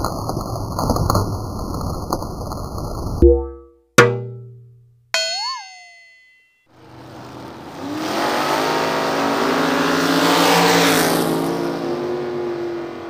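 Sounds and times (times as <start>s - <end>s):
car engine at high revs: 6.9s - 13.0s.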